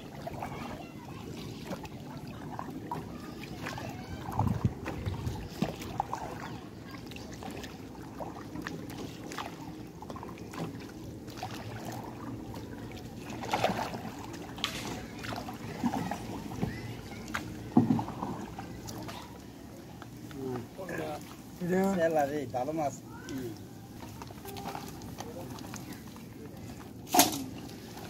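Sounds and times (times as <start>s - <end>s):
pole splashing in water: 1.3s - 19.3s, 27.0s - 28.0s.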